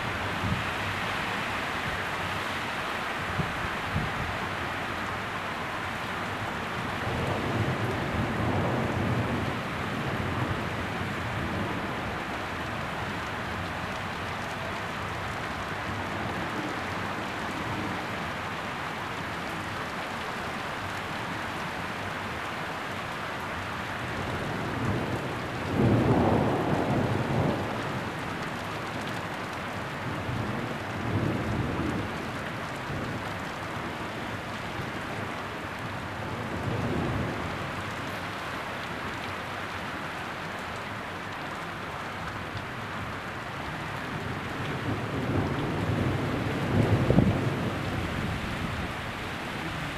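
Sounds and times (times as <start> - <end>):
heavy rain on foliage and paving: 0.0 - 49.9
thunder rumbling: 44.0 - 49.9.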